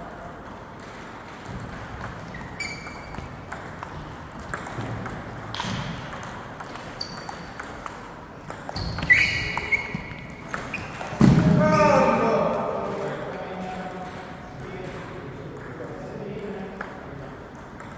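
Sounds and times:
ping pong ball clicks: 0.1 - 9.7, 10.4 - 11.1, 14.0 - 17.9
shoes squeaking: 2.2 - 3.5, 6.9 - 7.7, 8.6 - 11.3.

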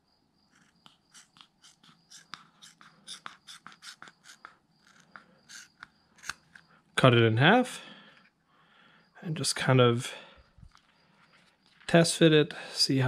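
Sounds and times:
scissors snipping rubber: 0.5 - 6.6.

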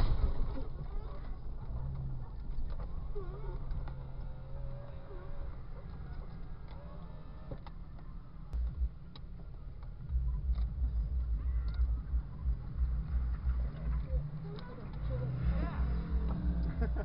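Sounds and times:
vehicle rumbling over rough ground: 0.0 - 17.0
low thumps: 8.6 - 17.0.

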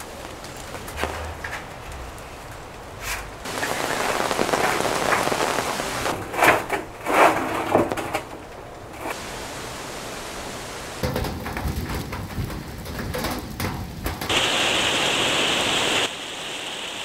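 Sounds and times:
loud bursts of noise: 0.0 - 6.7, 14.3 - 17.0
rain pattering on surfaces: 0.0 - 17.0.

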